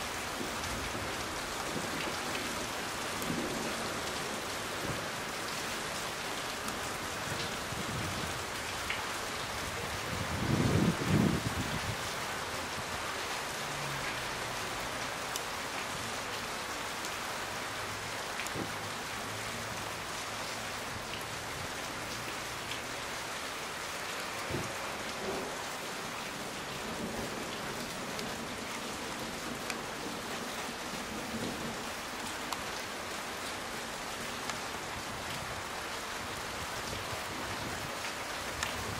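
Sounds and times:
steady rain falling: 0:00.0 - 0:38.9
raindrop ticks: 0:08.8 - 0:09.1, 0:15.3 - 0:15.9, 0:26.7 - 0:30.2, 0:32.2 - 0:33.2, 0:38.0 - 0:38.8.

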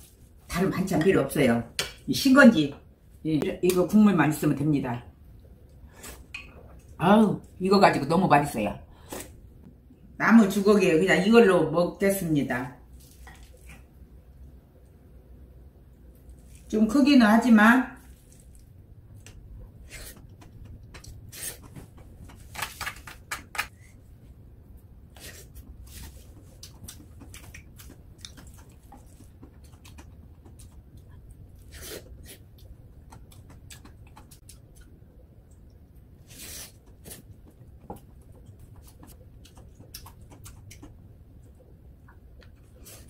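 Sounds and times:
chewing and lip smacking: 0:26.2 - 0:35.8, 0:36.8 - 0:43.0.

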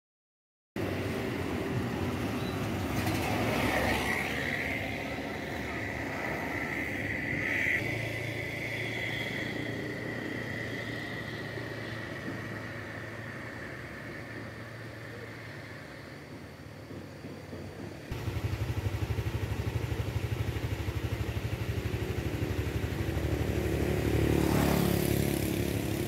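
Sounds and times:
motor scooter passing: 0:00.8 - 0:16.4, 0:18.1 - 0:26.0
traffic hum: 0:00.8 - 0:26.0.

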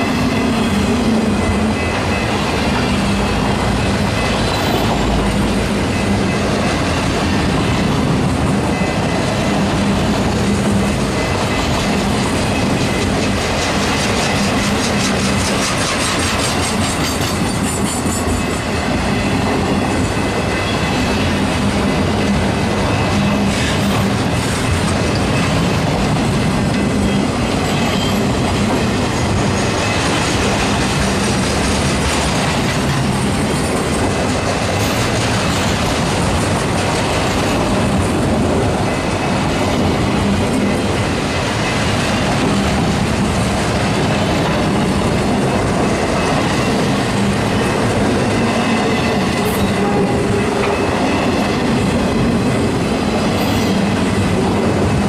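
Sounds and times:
train wheels clattering on rails: 0:00.0 - 0:55.0
high wheel squeal: 0:26.9 - 0:28.5.

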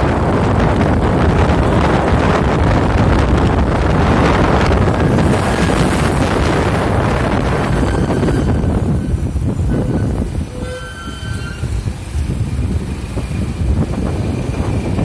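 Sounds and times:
vehicle running on road: 0:00.0 - 0:10.5
wind buffeting microphone: 0:00.0 - 0:15.0.

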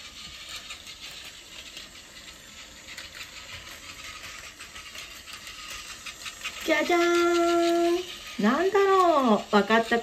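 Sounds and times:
toy train motor whirring: 0:00.0 - 0:10.0
wheels clicking and rattling on track: 0:00.0 - 0:10.0.

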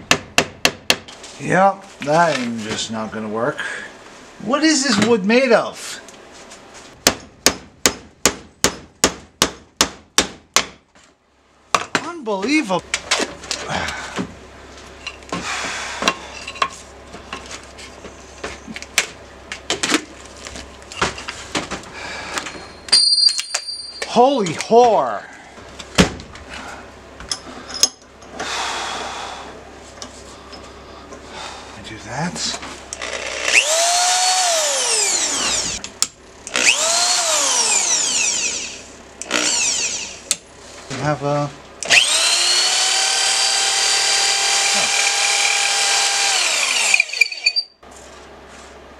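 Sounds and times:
drill motor whine: 0:33.0 - 0:35.8, 0:36.5 - 0:40.3, 0:41.8 - 0:47.7.

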